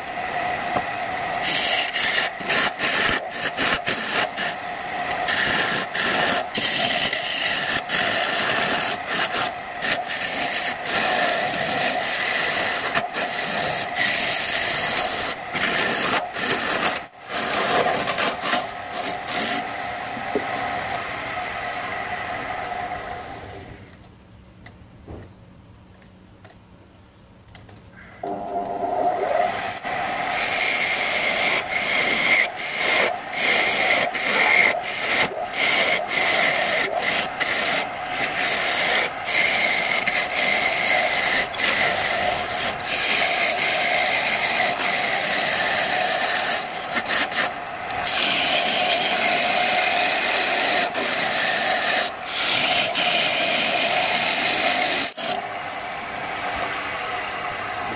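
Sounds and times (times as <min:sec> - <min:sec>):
lathe motor hum: 0:00.0 - 0:23.9, 0:28.2 - 0:57.9
gouge scraping spinning wood: 0:01.4 - 0:19.7, 0:28.8 - 0:55.4.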